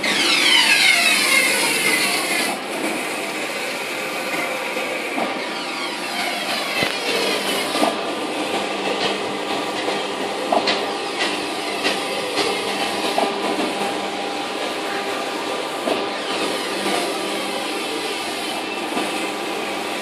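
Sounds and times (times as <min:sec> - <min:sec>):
motor whines falling in pitch: 0:00.0 - 0:02.1.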